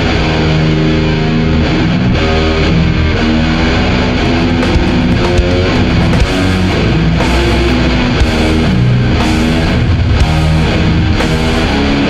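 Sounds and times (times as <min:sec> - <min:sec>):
heavily distorted electric guitars: 0:00.0 - 0:12.0.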